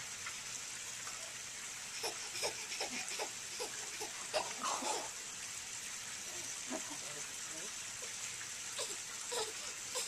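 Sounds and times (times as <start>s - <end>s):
steady hiss: 0.0s - 10.0s
baby giggling: 2.0s - 5.1s.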